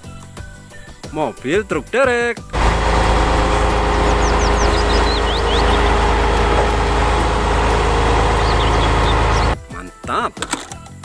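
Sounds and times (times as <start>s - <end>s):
truck diesel engine running: 2.6s - 9.6s
bird chirping: 3.6s - 9.6s.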